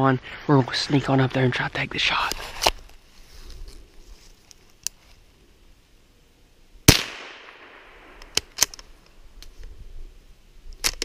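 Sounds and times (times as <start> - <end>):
rifle shot with echo: 6.9 - 8.6.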